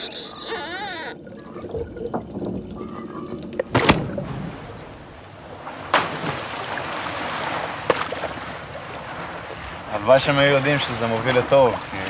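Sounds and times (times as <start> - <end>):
sea water splashing: 0.0 - 12.0
sudden loud splashes: 3.7 - 8.4.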